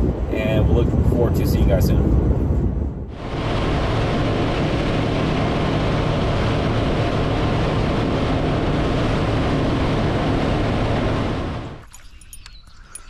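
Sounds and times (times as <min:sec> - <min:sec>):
wind and water rushing: 0:00.0 - 0:12.0
outboard motor: 0:03.1 - 0:12.4.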